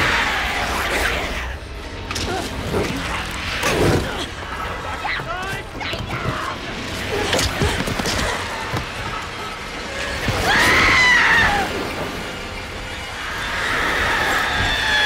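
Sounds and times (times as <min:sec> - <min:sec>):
music: 0:00.0 - 0:15.0
loud shrill scream: 0:10.3 - 0:11.8, 0:13.2 - 0:15.0.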